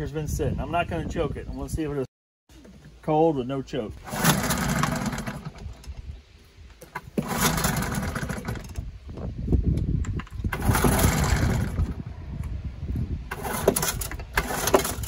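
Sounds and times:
outboard motor starting and running: 4.0 - 5.9, 6.8 - 8.9, 10.2 - 12.1, 13.3 - 15.0.

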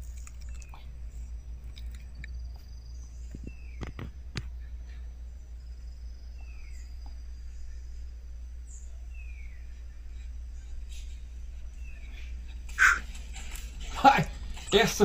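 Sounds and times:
low steady rumble: 0.0 - 15.0
descending bird whistles: 12.7 - 13.1
insect trilling: 12.8 - 13.2.

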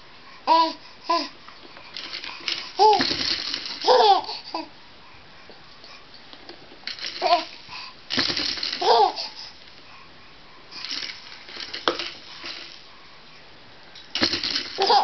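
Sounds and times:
plastic toy rings clattering: 1.9 - 4.7, 6.9 - 9.7, 10.8 - 12.9, 14.0 - 15.0
baby laughing: 3.7 - 4.7, 8.8 - 9.4, 14.8 - 15.0.

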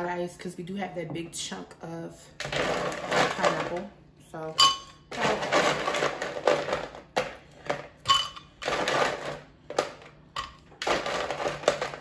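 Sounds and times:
ice cubes clattering in blender jar: 2.4 - 3.9, 4.6 - 7.1, 8.1 - 12.0.

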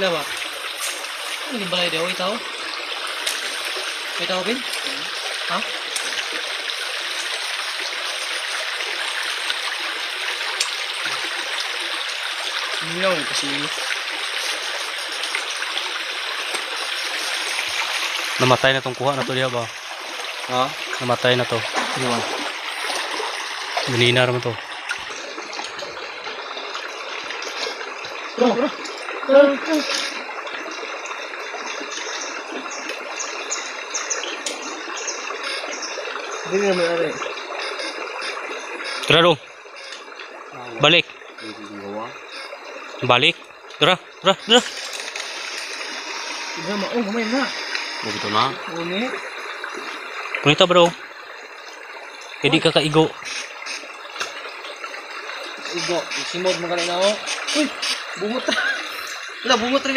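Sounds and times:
creek water flowing: 0.0 - 59.9
stream running over rocks: 0.0 - 59.9.

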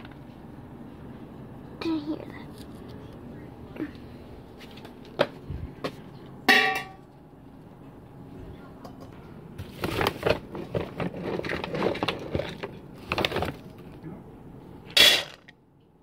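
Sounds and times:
ringing clang: 6.5 - 7.0
plastic containers clattering: 9.6 - 13.8, 14.9 - 15.5.

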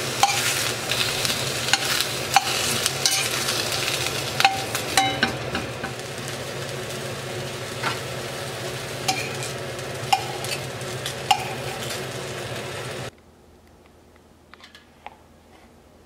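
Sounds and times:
ham sizzling in frying pan: 0.0 - 13.1
metal tongs clinking on pan: 0.2 - 6.0, 9.1 - 12.1.

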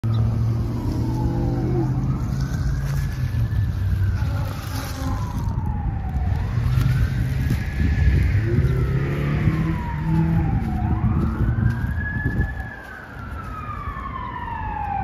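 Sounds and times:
emergency siren wailing: 0.0 - 15.0.

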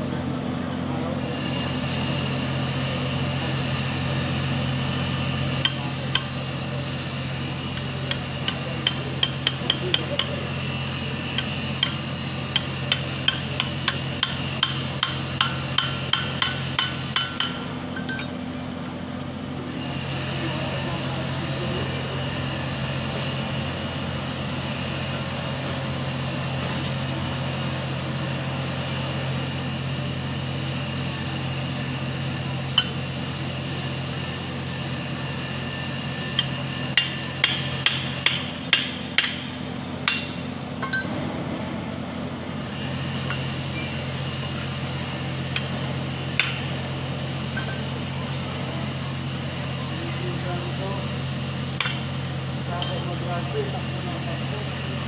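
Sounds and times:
steady background hum: 0.0 - 55.0
hammer striking metal: 7.8 - 10.4, 11.3 - 18.5, 36.4 - 41.1, 46.4 - 46.7, 51.8 - 52.1.

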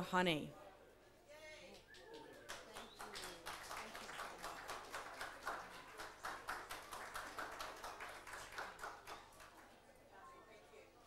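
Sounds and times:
light applause: 1.5 - 10.2.

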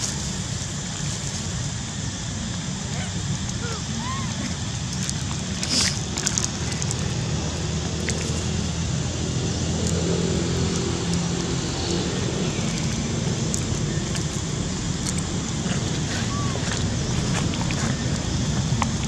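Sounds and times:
engine humming: 0.0 - 19.0.

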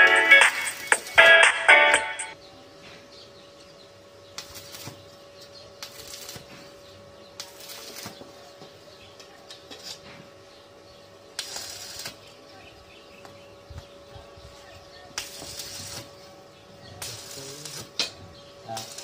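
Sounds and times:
arc welding crackle: 0.0 - 2.0, 4.3 - 8.4, 11.3 - 12.4, 15.1 - 16.2, 16.8 - 19.0.

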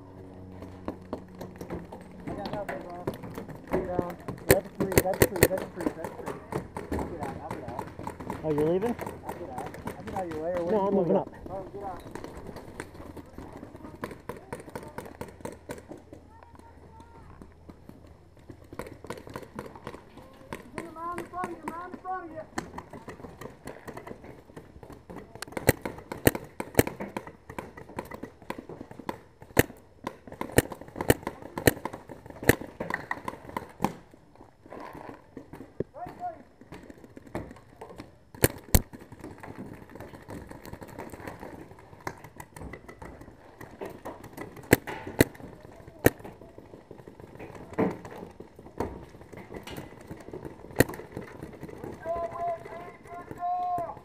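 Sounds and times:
paintball markers popping: 24.9 - 34.0, 38.4 - 48.3
paintball marker shot: 44.6 - 45.4.

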